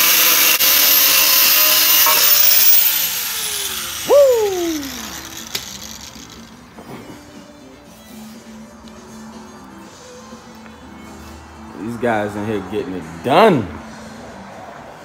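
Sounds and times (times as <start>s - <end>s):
angle grinder cutting steel: 0.0s - 6.6s
short rising whine: 1.0s - 6.4s.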